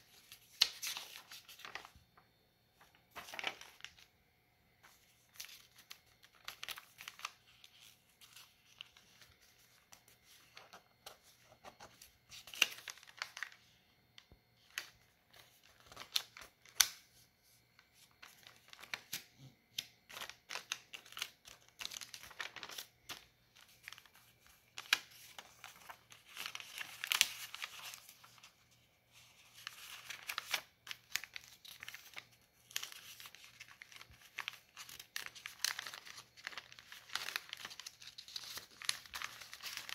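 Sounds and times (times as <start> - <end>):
paper rustling and crinkling: 0.0 - 4.1, 4.8 - 39.9
sharp paper clicks: 15.8 - 17.0, 18.2 - 28.4, 29.4 - 39.9.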